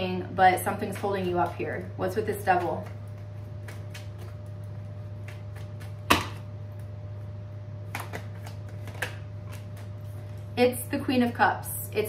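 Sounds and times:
cards being shuffled: 2.5 - 6.5, 7.8 - 10.4.

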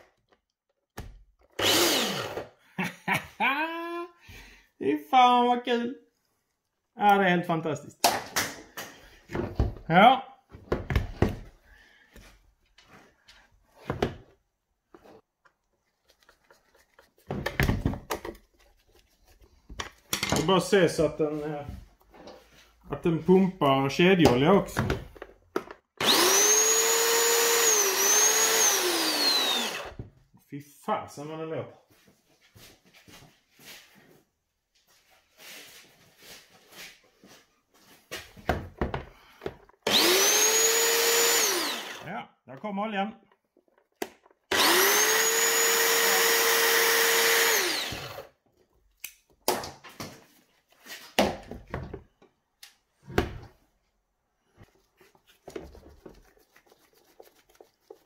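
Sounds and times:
electric chainsaw motor whining: 1.6 - 2.5, 26.0 - 30.0, 39.8 - 42.1, 44.5 - 48.3.

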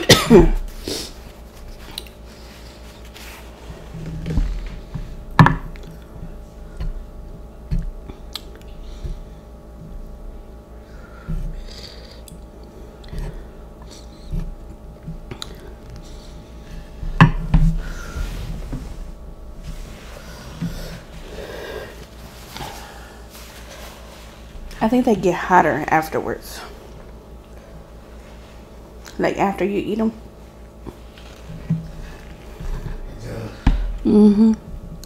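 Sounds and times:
person chewing noodles: 1.8 - 2.7, 15.3 - 15.9.

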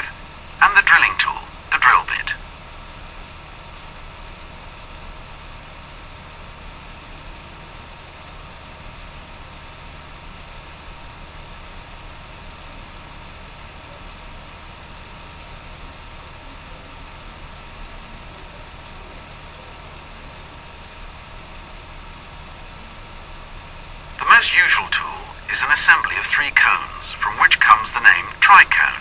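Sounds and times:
low hum: 0.0 - 29.0
background hiss: 23.5 - 29.0.

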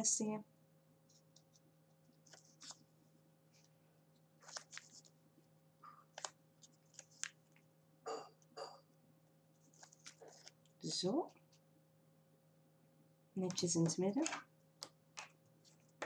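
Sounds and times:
paper card rustling: 1.1 - 2.9, 4.4 - 5.2, 6.0 - 7.7, 9.6 - 11.6
paper crackles: 1.1 - 2.9, 4.4 - 5.2, 6.0 - 7.6, 9.6 - 11.6.

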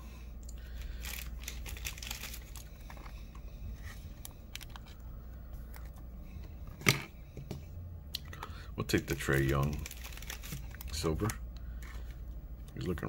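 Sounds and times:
cards rustling: 0.7 - 3.2, 8.9 - 12.3.

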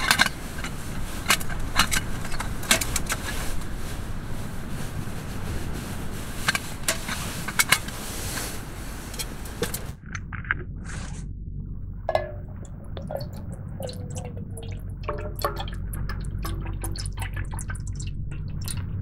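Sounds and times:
water pouring into metal pot: 12.2 - 19.0.

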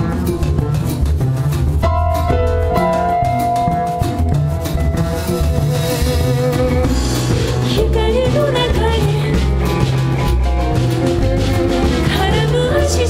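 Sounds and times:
live band playing: 0.0 - 13.0
woman singing: 6.9 - 9.8, 11.7 - 13.0.

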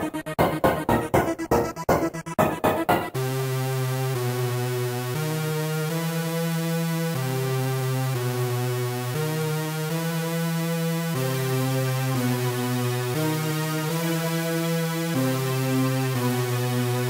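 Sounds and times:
synthesizer chords: 0.0 - 4.2.

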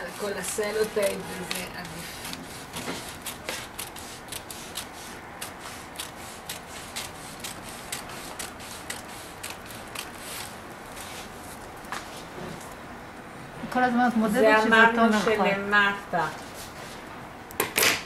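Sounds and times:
scissors snipping paper: 0.0 - 11.0.

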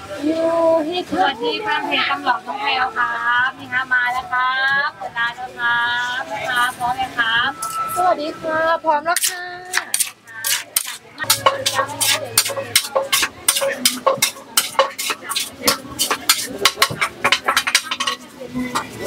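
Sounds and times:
wooden pestle pounding in mortar: 9.2 - 18.9.

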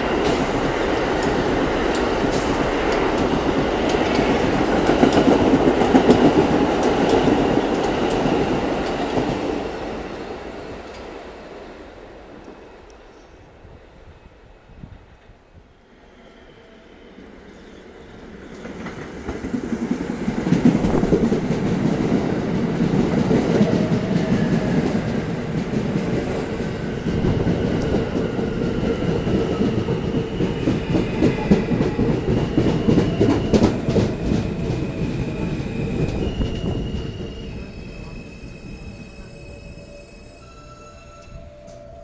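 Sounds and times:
train wheels rumbling and clacking: 0.0 - 11.6, 18.2 - 39.8.

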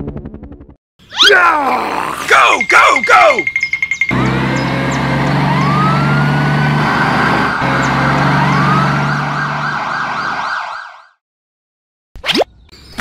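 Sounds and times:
siren wailing: 1.1 - 11.2.

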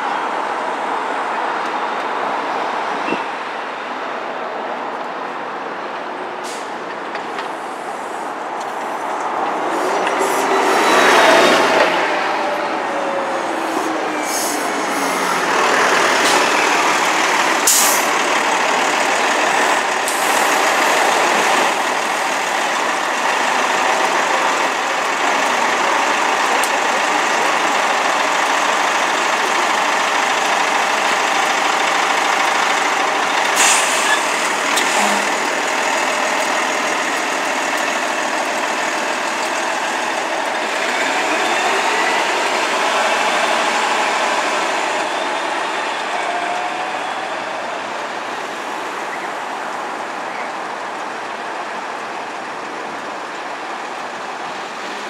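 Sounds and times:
diesel bus engine: 0.0 - 55.0
air brake hisses: 17.6 - 18.1, 33.6 - 35.4.

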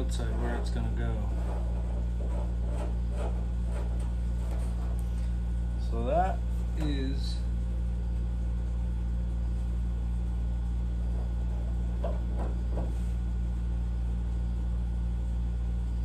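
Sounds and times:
scribe scratching: 0.0 - 5.0
steady low hum: 0.0 - 16.0.

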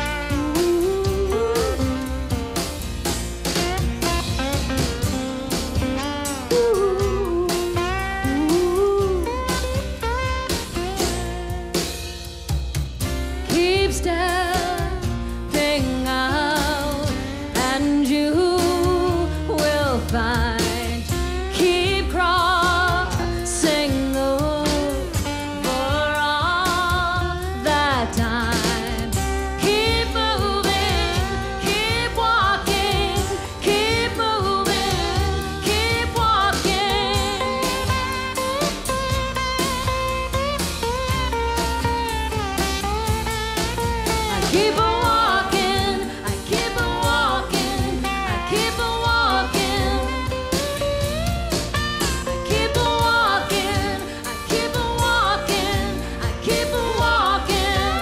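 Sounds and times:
woman singing with vibrato: 0.0 - 2.2, 6.4 - 9.7, 13.4 - 38.4, 44.2 - 51.0, 52.2 - 58.0
acoustic guitar: 0.0 - 58.0
drums: 0.0 - 58.0
upright bass: 0.0 - 58.0.

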